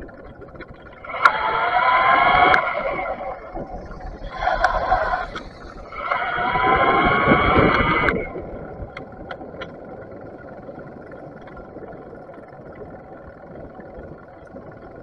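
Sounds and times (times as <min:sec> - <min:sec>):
faint clicks: 0:00.0 - 0:01.6, 0:04.2 - 0:06.3, 0:07.6 - 0:12.9
wind and road noise: 0:00.0 - 0:13.2
electric bike motor whining: 0:01.0 - 0:08.5.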